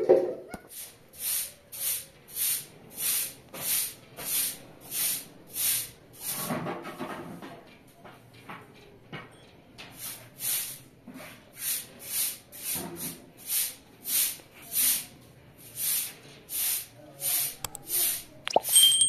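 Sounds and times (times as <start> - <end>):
broom sweeping concrete floor: 0.7 - 6.7, 10.0 - 17.5.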